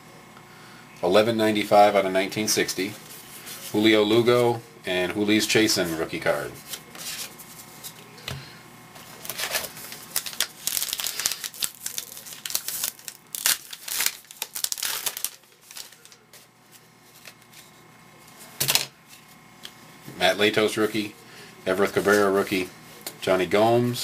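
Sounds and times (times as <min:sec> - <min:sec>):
card pack wrapper tearing and crinkling: 0:09.0 - 0:16.5.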